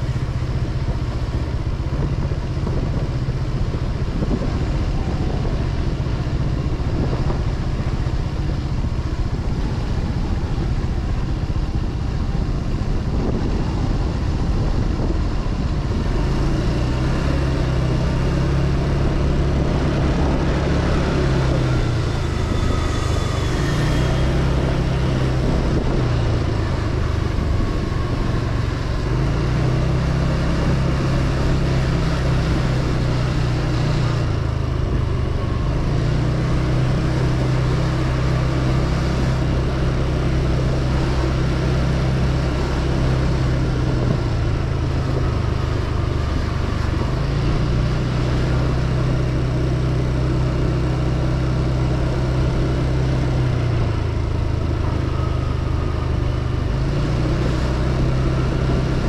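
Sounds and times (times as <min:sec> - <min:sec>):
motorbike engine running: 0:00.0 - 0:59.0
wind and road noise: 0:00.0 - 0:59.0.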